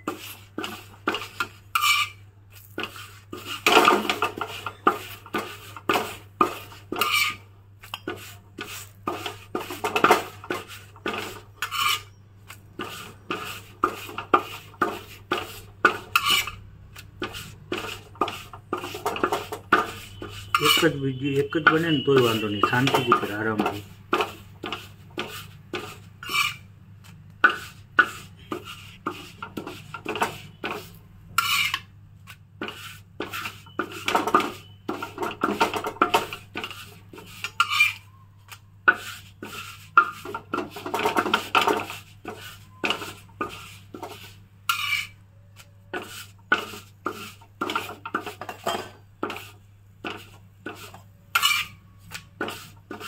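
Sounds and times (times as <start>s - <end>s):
wooden press scraping and knocking: 17.2s - 26.5s.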